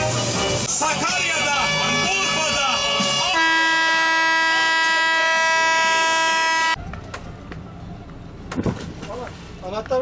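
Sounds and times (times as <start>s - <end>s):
boat air horn: 1.0s - 6.8s.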